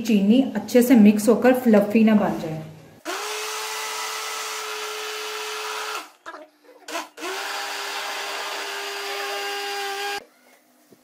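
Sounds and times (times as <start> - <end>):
blender motor whining: 3.0 - 6.2, 6.9 - 10.2.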